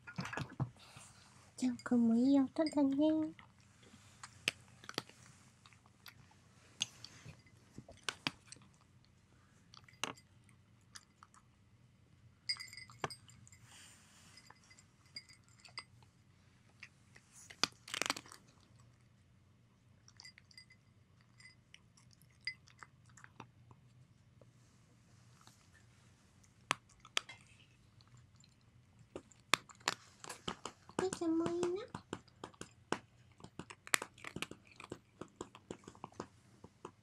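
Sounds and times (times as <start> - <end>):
cat crunching dry kibble: 3.3 - 9.1, 16.7 - 19.2, 26.4 - 37.0.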